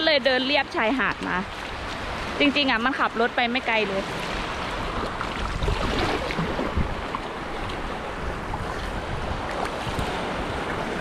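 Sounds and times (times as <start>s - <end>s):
sea waves washing onto beach: 0.1s - 11.0s
wind rushing across microphone: 4.3s - 11.0s.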